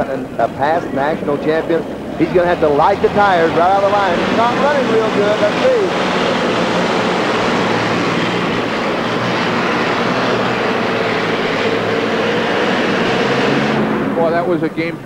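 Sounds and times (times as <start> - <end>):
commentators talking: 0.0 - 8.2, 14.0 - 15.0
tractor engine running hard: 0.0 - 15.0.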